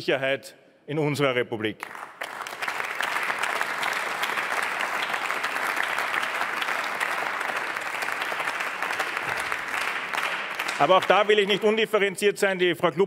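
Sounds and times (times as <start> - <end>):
crowd applauding: 1.8 - 12.0.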